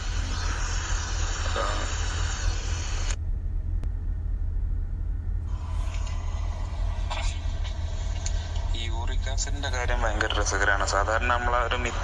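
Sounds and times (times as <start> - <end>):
hiss: 0.0 - 3.2
steady low rumble: 0.0 - 12.0.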